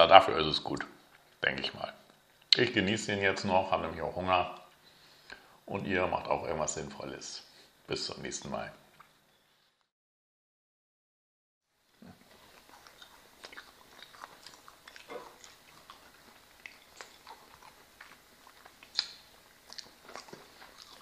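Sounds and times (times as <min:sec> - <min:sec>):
people chewing and biting: 0:12.0 - 0:21.0.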